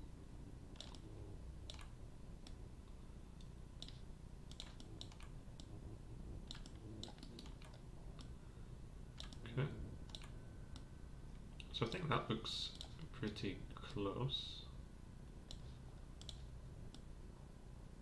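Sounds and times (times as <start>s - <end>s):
faint low hum: 0.0s - 18.0s
mouse and keyboard clicks: 0.7s - 2.6s, 3.4s - 5.8s, 6.4s - 8.3s, 9.2s - 9.5s, 10.1s - 10.9s, 12.7s - 13.4s.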